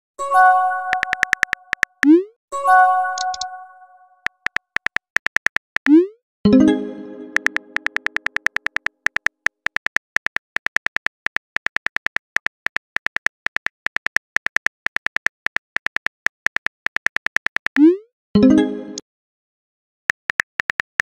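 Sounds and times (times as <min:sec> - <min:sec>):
phone keyboard clicks: 0:00.9 - 0:02.1, 0:03.2 - 0:03.5, 0:04.2 - 0:05.9, 0:07.3 - 0:17.8, 0:20.1 - 0:21.0.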